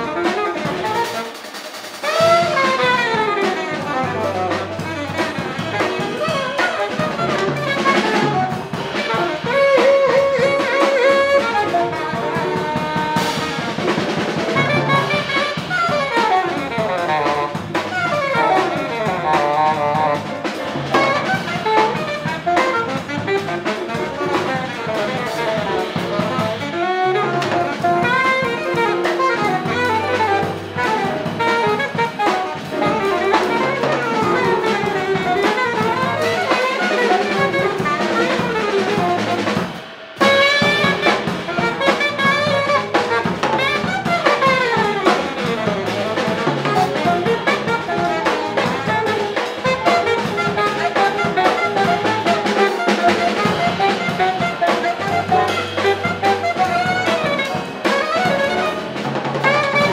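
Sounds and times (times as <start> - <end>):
alto saxophone solo: 0.0 - 59.9
drum kit: 0.0 - 59.9.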